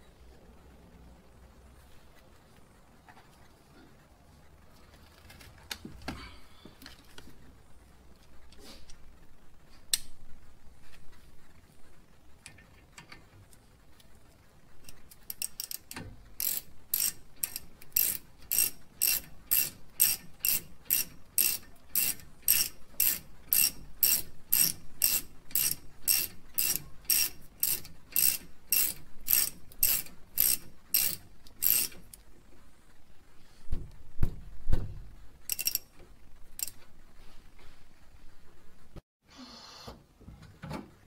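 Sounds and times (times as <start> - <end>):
socket ratchet clicking: 15.2 - 32.2, 35.5 - 35.8.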